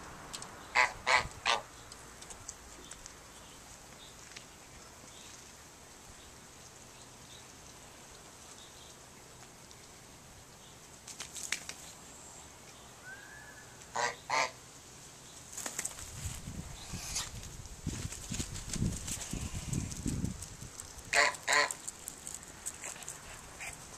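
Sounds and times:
goose honking: 0.8 - 1.6, 13.9 - 14.6, 21.1 - 21.8.

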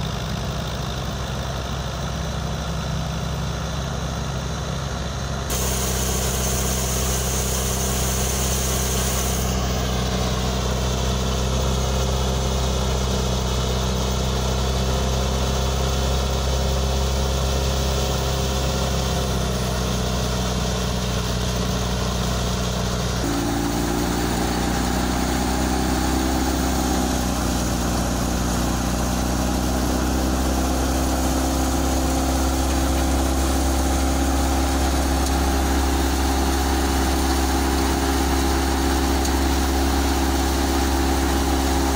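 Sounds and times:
tractor engine drone: 0.0 - 41.9
thresher drum and belts whirring: 5.5 - 13.2, 23.2 - 41.9.

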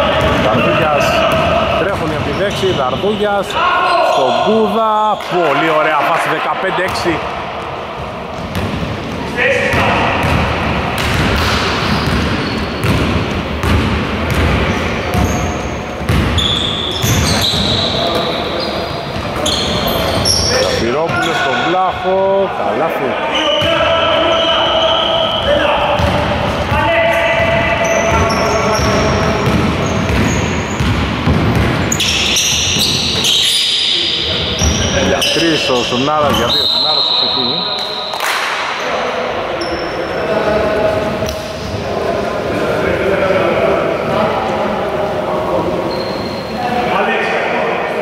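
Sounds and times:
sneakers squeaking: 0.0 - 5.9, 6.8 - 22.0, 23.2 - 42.0, 45.8 - 46.8
basketball bouncing on wooden floor: 8.4 - 15.4, 16.1 - 16.4, 29.4 - 32.0
basketball dribbling on wood floor: 12.8 - 15.2.

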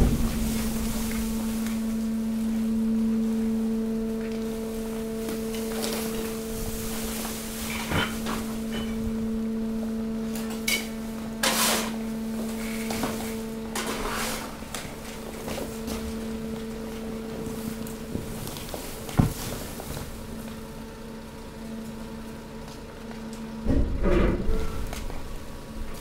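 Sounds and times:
waste knocking and clattering: 0.0 - 1.9, 7.7 - 9.0, 17.3 - 20.2
hydraulic pump humming: 0.0 - 26.0.

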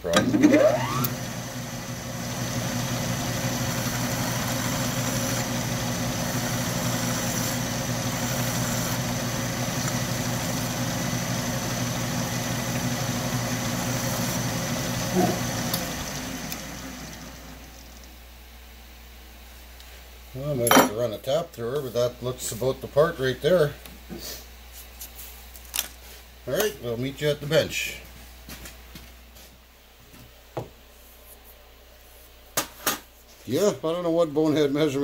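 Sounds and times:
metal lathe running: 0.1 - 17.7.

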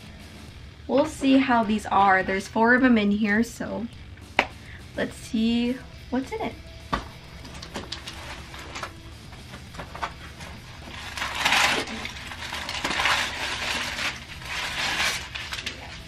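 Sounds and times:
packing paper rustling and crinkling: 7.5 - 16.0.

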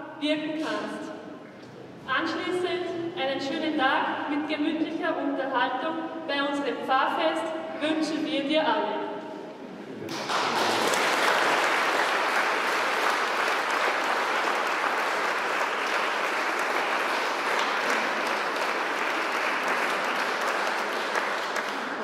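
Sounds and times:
congregation applauding: 10.1 - 22.0.

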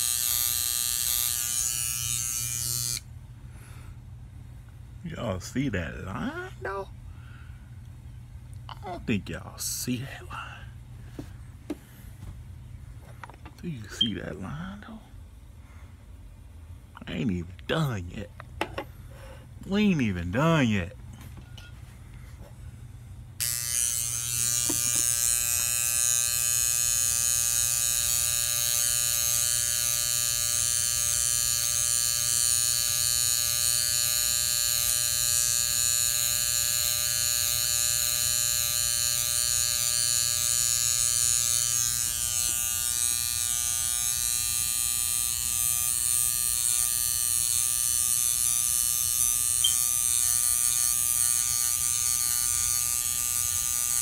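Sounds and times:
hair clippers buzzing: 0.0 - 3.1, 23.4 - 54.0.

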